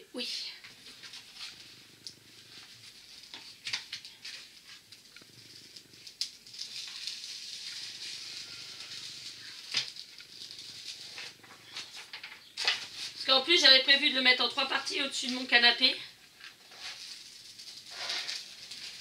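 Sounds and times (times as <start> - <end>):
plastic sheet rustling and crinkling: 6.0 - 19.0.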